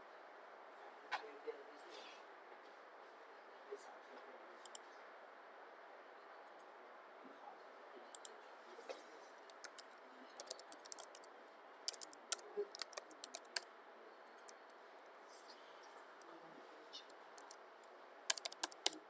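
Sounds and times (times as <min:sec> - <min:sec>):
keyboard keystroke clicks: 0:04.6 - 0:04.8, 0:09.4 - 0:11.3, 0:11.9 - 0:13.7, 0:14.3 - 0:14.8, 0:17.4 - 0:17.6, 0:18.3 - 0:19.0.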